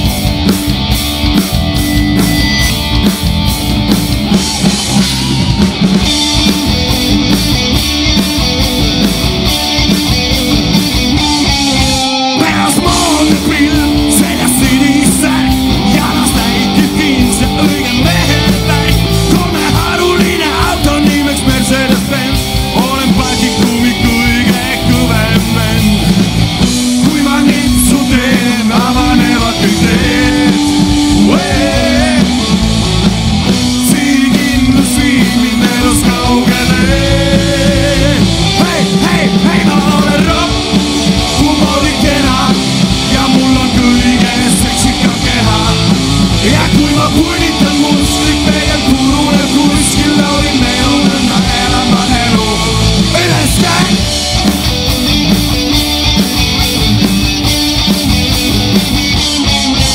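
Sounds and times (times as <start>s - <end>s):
drum kit: 0.0s - 59.9s
electric guitars: 0.0s - 59.9s
man singing: 12.2s - 26.2s, 26.9s - 32.7s, 33.6s - 54.2s.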